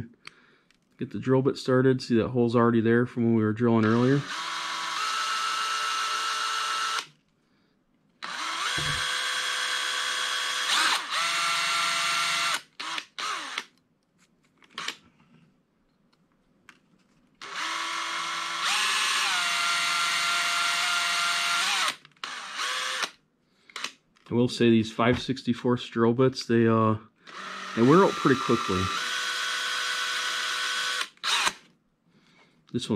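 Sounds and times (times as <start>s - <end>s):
cordless drill motor whining: 3.8s - 7.1s, 8.2s - 13.7s, 17.4s - 24.0s, 27.3s - 31.7s.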